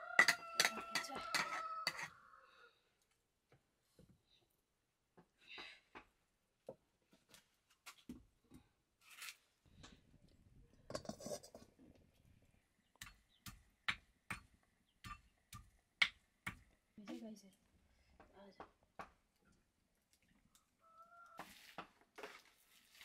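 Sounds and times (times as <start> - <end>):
kitchen utensils and dishes clinking: 0.2 - 2.1.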